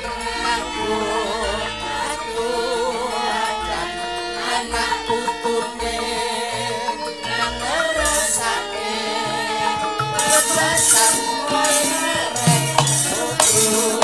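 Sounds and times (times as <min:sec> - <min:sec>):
woman singing wavering vocal: 0:00.0 - 0:14.0
gamelan ensemble playing: 0:07.2 - 0:14.0.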